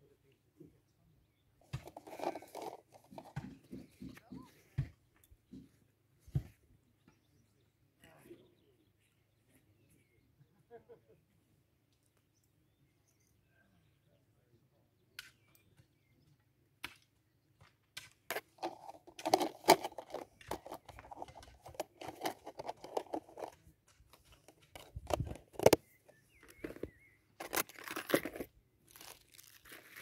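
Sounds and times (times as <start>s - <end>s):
backpack and packets rustling: 1.7s - 3.6s, 18.3s - 30.0s.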